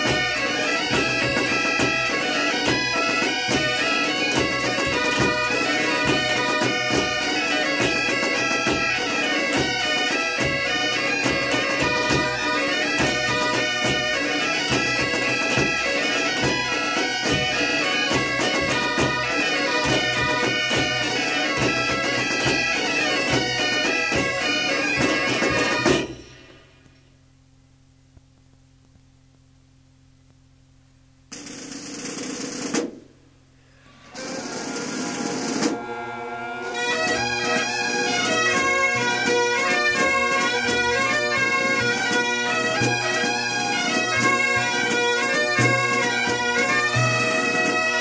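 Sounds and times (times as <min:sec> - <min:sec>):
bagpipe band playing a tune: 0:00.0 - 0:26.6, 0:33.8 - 0:48.0
faint cassette hum: 0:26.8 - 0:31.4.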